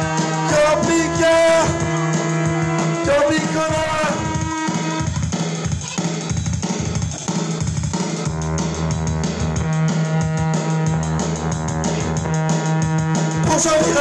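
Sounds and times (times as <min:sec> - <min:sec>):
bass notes: 0:00.0 - 0:14.0
drum kit beat: 0:00.0 - 0:14.0.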